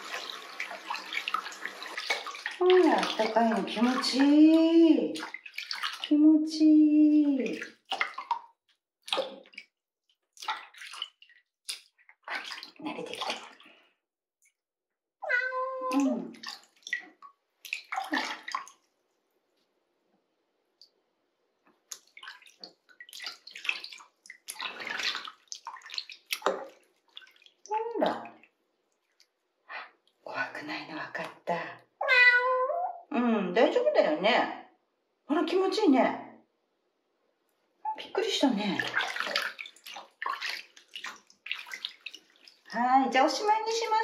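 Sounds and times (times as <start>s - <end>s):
water splashing in sink: 0.0s - 13.9s, 15.2s - 19.0s, 21.7s - 29.4s, 37.9s - 44.0s
kitten meowing: 15.2s - 15.8s, 32.0s - 33.0s.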